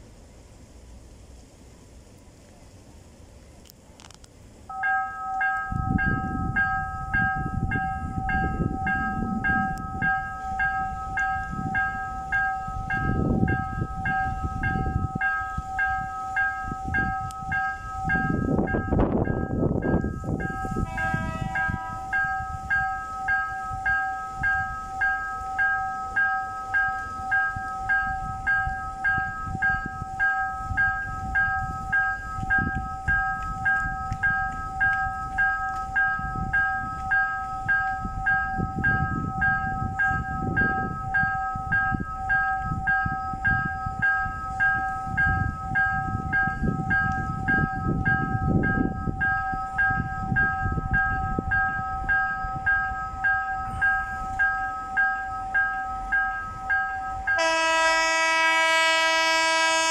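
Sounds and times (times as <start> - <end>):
low rumble: 4.4 - 20.9
pulsing electronic warning tone: 4.7 - 59.9
two-note drone: 4.7 - 59.9.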